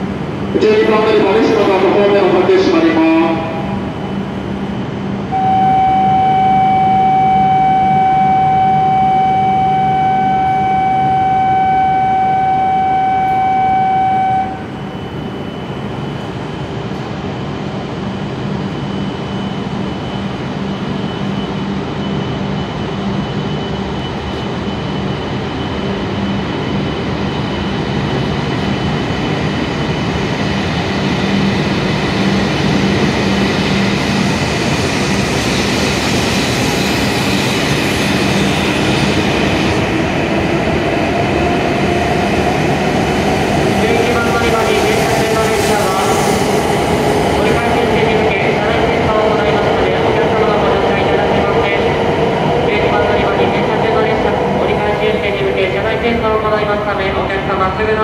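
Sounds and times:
train running hum: 0.0s - 58.0s
wheels rushing on rail: 3.5s - 56.6s
train motor whine: 5.3s - 15.4s
steady electronic tone: 5.3s - 16.2s.

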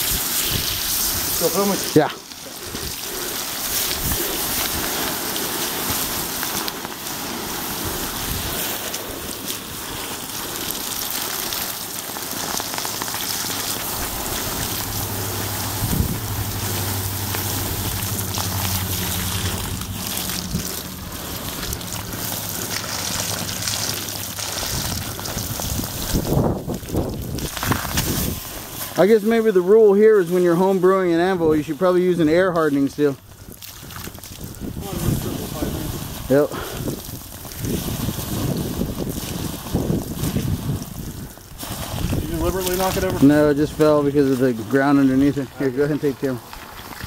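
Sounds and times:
steaming hiss: 0.0s - 26.5s
hose water spraying on hot metal: 0.0s - 47.0s.

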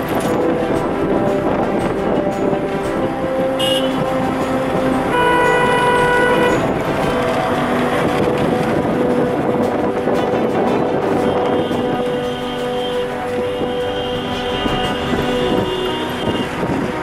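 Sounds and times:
road traffic: 0.0s - 17.0s
vehicle horn: 3.4s - 8.9s, 10.2s - 17.0s.

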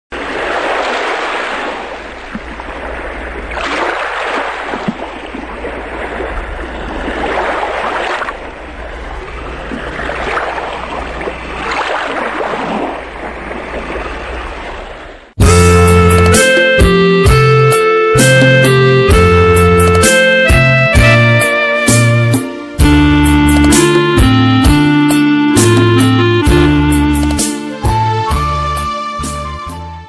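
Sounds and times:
waves washing in: 0.1s - 28.0s
steady low rumble: 8.3s - 11.7s.

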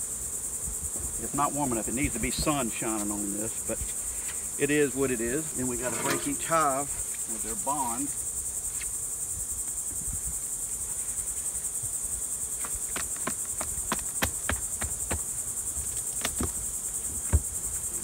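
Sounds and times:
high-pitched insect chorus: 0.0s - 18.0s
sharp cracks and knocks of prying: 15.9s - 16.6s.

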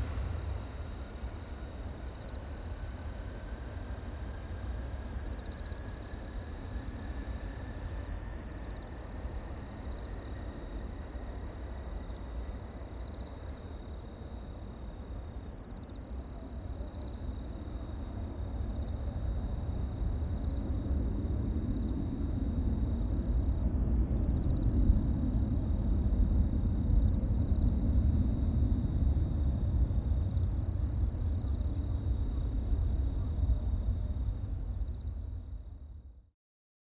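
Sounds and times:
deep jet rumble: 0.0s - 8.4s, 17.9s - 36.3s
jet engine whine: 0.0s - 36.3s.

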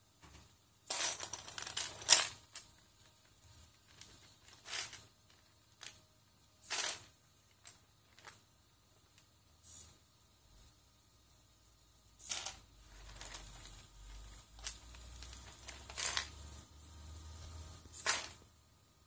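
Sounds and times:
plastic bricks clattering: 0.9s - 2.9s, 3.7s - 6.0s, 12.2s - 16.4s, 18.0s - 18.4s.

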